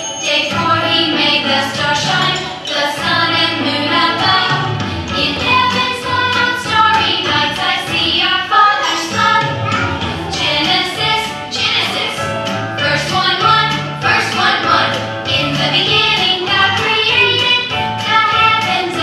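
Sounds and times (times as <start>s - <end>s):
musical backing: 0.0s - 19.0s
voices singing: 0.0s - 19.0s.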